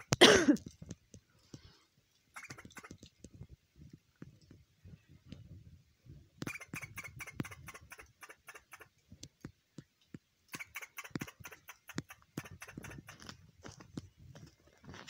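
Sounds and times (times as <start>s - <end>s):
squirrel chattering: 2.4s - 3.0s, 6.4s - 8.9s, 10.5s - 13.3s.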